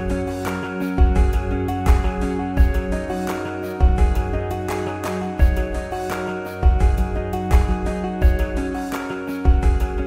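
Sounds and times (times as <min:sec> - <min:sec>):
repeating low beat: 0:01.0 - 0:03.1, 0:06.6 - 0:08.8.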